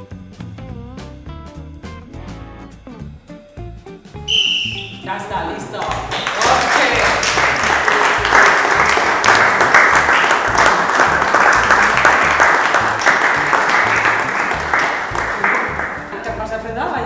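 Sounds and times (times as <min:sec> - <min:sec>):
background music with bass line: 0:00.0 - 0:17.0
audience applauding: 0:05.8 - 0:16.1.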